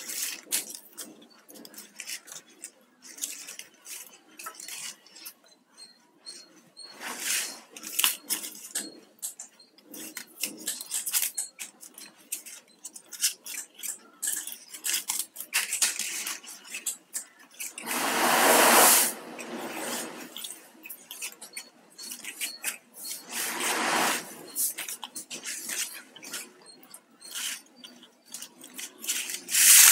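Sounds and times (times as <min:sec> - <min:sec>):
rustling rush: 0:17.8 - 0:20.3.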